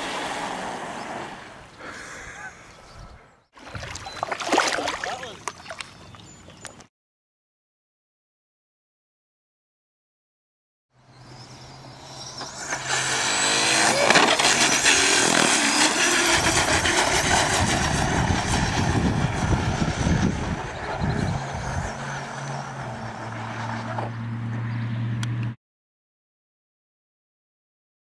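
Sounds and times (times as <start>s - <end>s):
electric motor whining: 11.9s - 22.4s.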